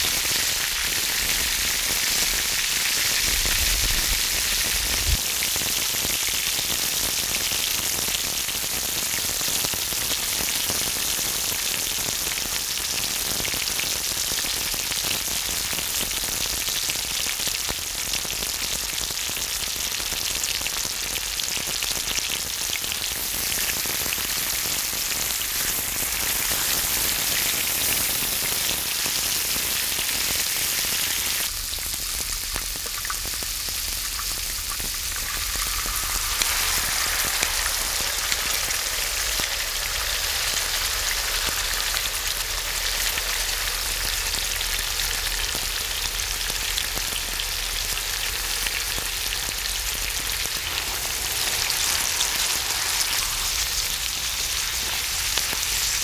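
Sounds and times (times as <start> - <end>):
pork sizzling on a griddle: 0.0 - 56.0.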